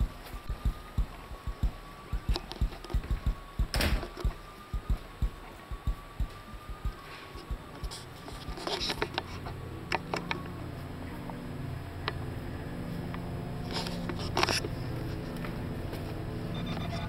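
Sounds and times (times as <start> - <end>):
sharp clicks: 0.0 - 9.3
footsteps in house: 0.0 - 9.6
low steady hum: 0.0 - 17.0.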